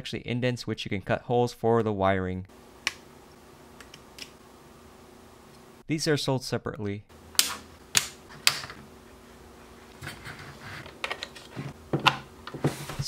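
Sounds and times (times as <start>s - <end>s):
handling noise: 7.2s - 13.0s.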